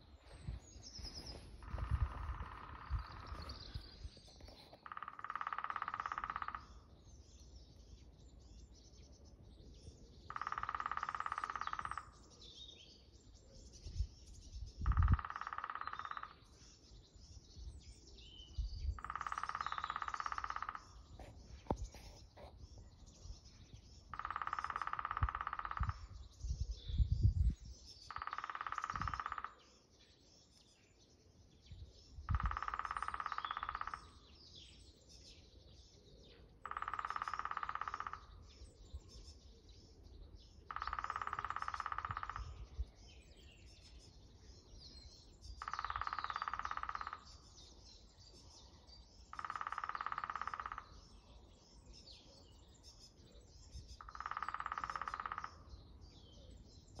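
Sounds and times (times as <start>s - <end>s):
small birds chirping: 0.0s - 57.0s
woodpecker drumming on wood: 1.6s - 3.7s, 4.3s - 6.8s, 10.3s - 12.2s, 14.8s - 16.5s, 19.0s - 22.5s, 24.1s - 26.2s, 28.1s - 29.8s, 32.3s - 34.2s, 36.6s - 38.4s, 40.7s - 42.6s, 45.6s - 47.4s, 49.3s - 51.1s, 54.0s - 55.7s.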